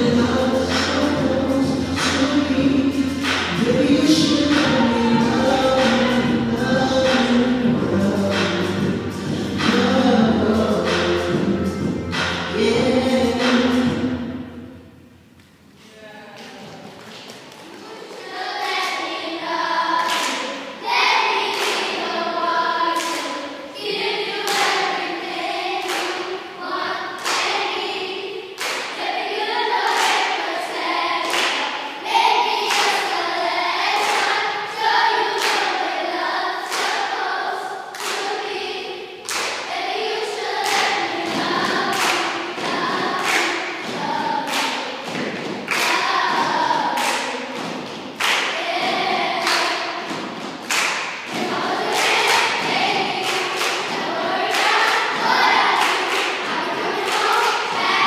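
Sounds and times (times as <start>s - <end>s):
stomping in a steady beat: 0.0s - 15.6s, 39.3s - 58.0s
children chanting in unison: 17.6s - 58.0s.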